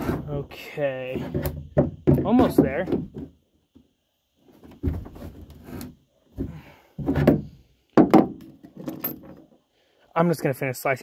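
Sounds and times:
dull plastic knocks: 1.2s - 3.4s, 7.0s - 8.6s.

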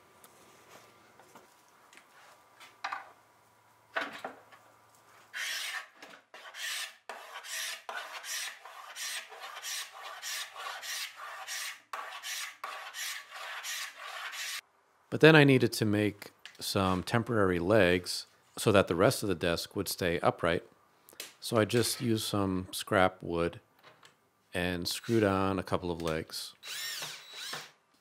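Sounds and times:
hand scraper rasping on wood: 5.4s - 14.6s.

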